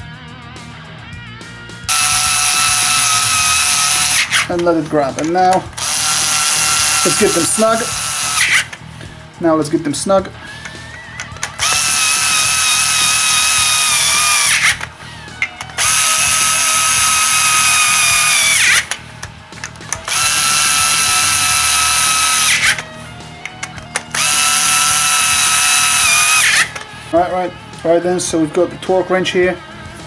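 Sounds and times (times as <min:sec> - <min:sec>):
electric screwdriver motor whine: 0:01.9 - 0:08.8, 0:10.6 - 0:19.0, 0:19.7 - 0:26.9.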